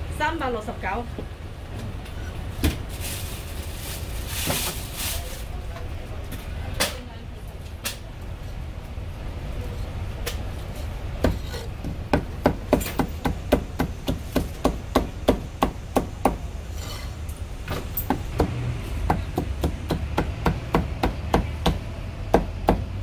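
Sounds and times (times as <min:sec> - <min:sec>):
cleaver chopping on wooden block: 0:18.1 - 0:22.9.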